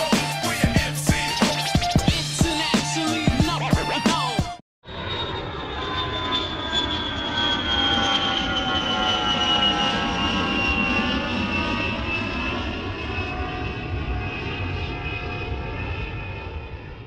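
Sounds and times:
high engine whine: 0.0s - 17.0s.

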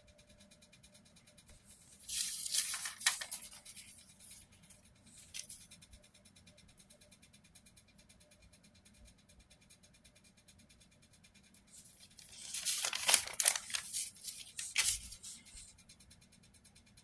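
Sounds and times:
paper rustling: 2.0s - 4.4s, 5.2s - 5.6s, 12.1s - 15.7s.

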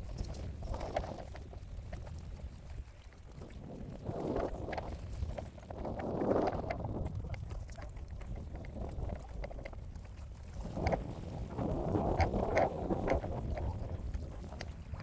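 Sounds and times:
water splashing and lapping: 0.0s - 15.0s
wind buffeting microphone: 0.0s - 15.0s.

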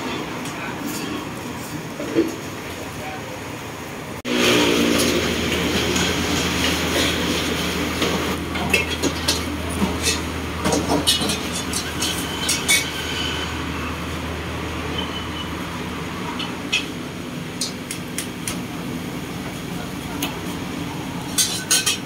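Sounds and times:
gas burner rushing: 3.6s - 22.0s
utensil clinking on metal wok: 21.3s - 22.0s.

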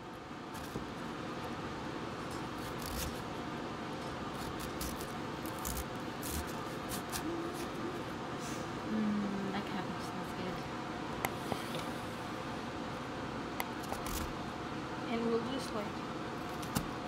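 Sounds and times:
steady background hum: 0.0s - 17.0s
knife slicing cabbage on board: 2.5s - 3.2s, 4.4s - 7.7s.

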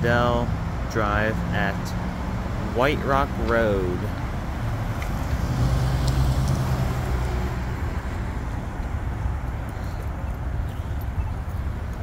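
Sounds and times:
passing vehicle low hum: 0.0s - 12.0s
road traffic rumble: 0.0s - 12.0s.

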